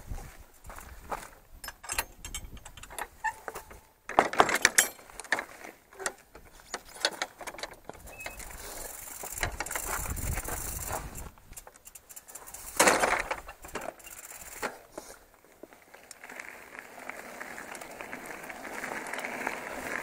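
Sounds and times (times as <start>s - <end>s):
metal gate latch clanking: 1.6s - 5.1s.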